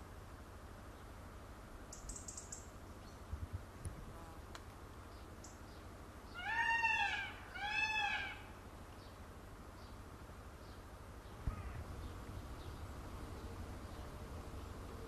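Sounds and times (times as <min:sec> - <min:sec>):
peacock wailing calls: 0:06.3 - 0:08.6.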